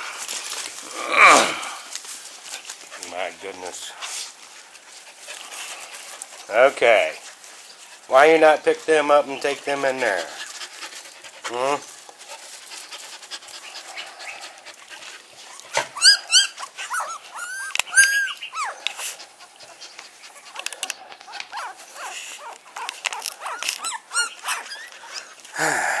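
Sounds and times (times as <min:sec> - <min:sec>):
puppies whining and yelping: 0:09.9 - 0:25.5.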